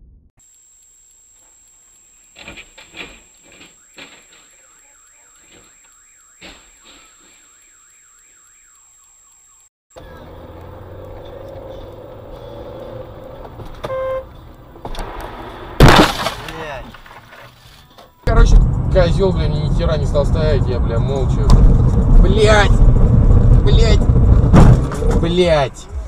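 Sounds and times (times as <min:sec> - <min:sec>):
car alarm warbling: 0:03.4 - 0:11.5, 0:13.8 - 0:14.4
road and engine rumble: 0:09.9 - 0:15.9, 0:16.7 - 0:26.0
short car horn beep: 0:13.8 - 0:14.3.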